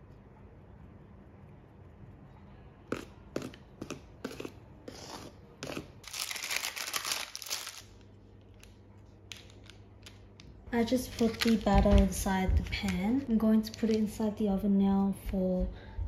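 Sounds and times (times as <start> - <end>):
baking paper crinkling: 2.9 - 14.4.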